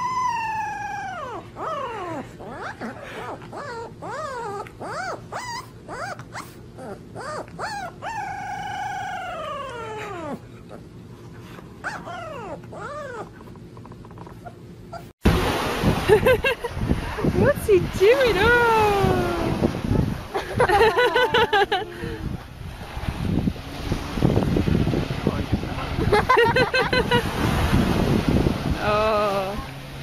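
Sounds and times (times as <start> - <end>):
puppy yipping and howling: 0.0 - 10.8, 11.8 - 13.6, 14.4 - 15.1
wind noise on microphone: 15.2 - 30.0.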